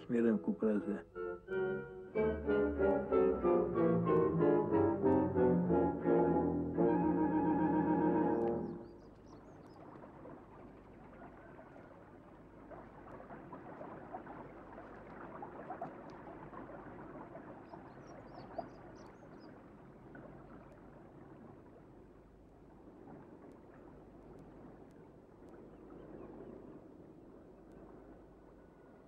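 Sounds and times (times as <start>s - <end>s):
brass music: 0.0s - 8.9s.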